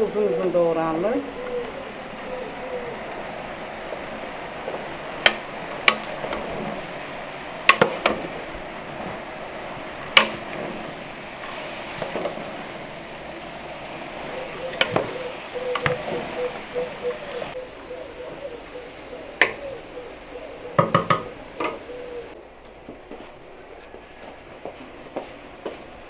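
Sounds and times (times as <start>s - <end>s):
vegetables sizzling in oil: 0.8s - 17.6s.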